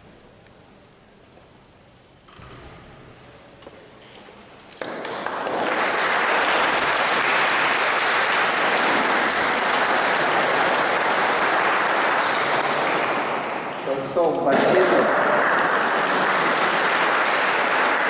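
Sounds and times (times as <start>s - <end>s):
congregation clapping: 4.7s - 18.0s.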